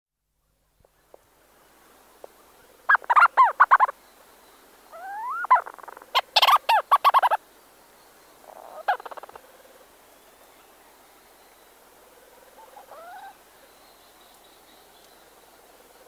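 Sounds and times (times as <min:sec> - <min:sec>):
storm petrels chattering calls: 0:05.0 - 0:07.4.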